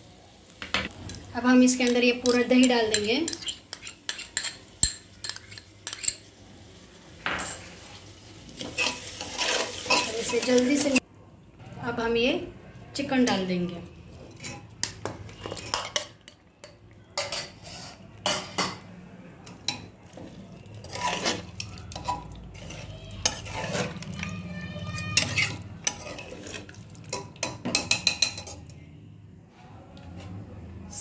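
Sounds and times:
metal spoon scraping a pot: 1.1s - 6.3s, 8.6s - 11.0s, 14.0s - 16.3s, 17.1s - 18.8s, 19.5s - 28.8s.

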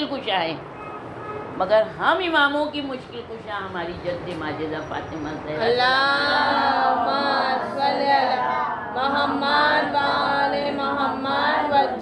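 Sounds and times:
woman chanting: 5.5s - 12.0s.

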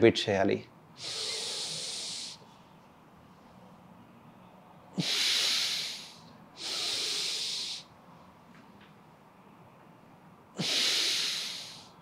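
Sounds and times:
loud hissing breaths: 1.0s - 2.4s, 5.0s - 7.9s, 10.6s - 12.0s.

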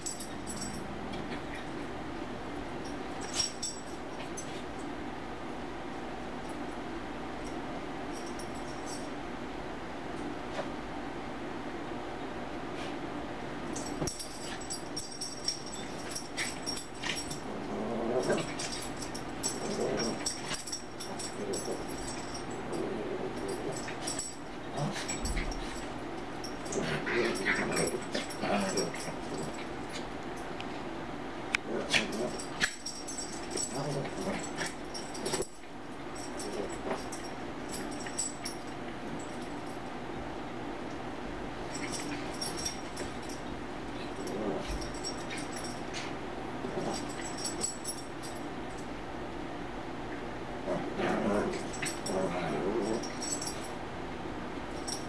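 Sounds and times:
collar tags jingling: 0.0s - 1.6s, 2.8s - 4.6s, 13.7s - 30.1s, 31.8s - 39.8s, 41.6s - 48.9s, 51.0s - 53.8s, 54.7s - 55.0s.

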